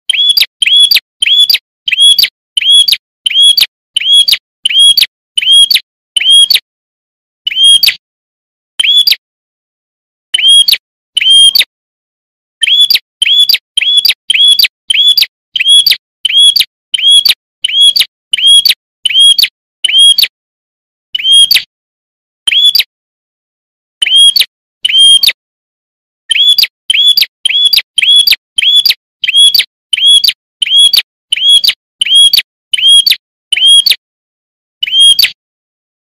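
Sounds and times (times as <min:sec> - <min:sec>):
prinia chirping: 0:00.1 - 0:06.4, 0:12.6 - 0:19.3, 0:26.3 - 0:33.8.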